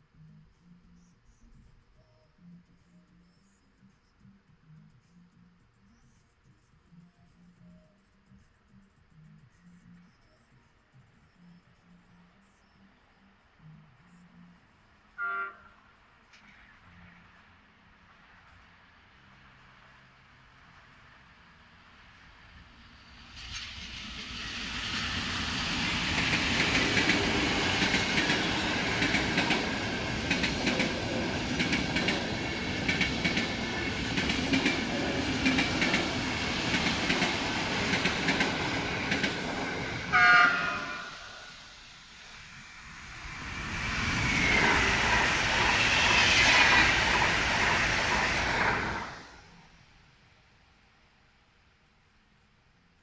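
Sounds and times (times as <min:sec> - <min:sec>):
electric train passing: 0:09.6 - 0:51.4
train horn blast: 0:15.2 - 0:15.9, 0:40.1 - 0:41.6
train wheels clattering over rails: 0:23.3 - 0:40.1, 0:43.5 - 0:49.3.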